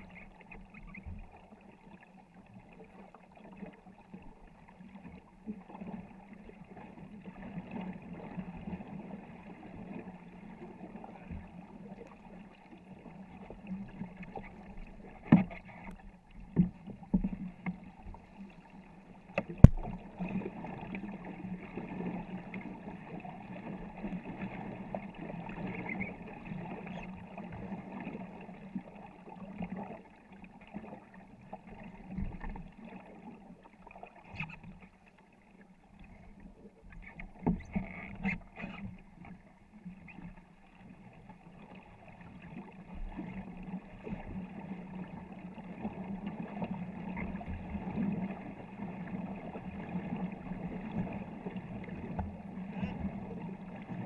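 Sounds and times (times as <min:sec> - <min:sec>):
paddles stroking through water: 0:00.0 - 0:54.0
water washing along hull: 0:00.0 - 0:54.0.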